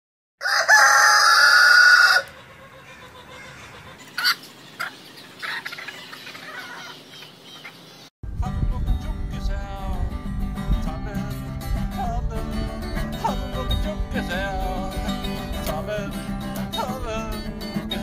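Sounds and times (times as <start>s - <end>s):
rooster crowing: 0.4s - 4.4s.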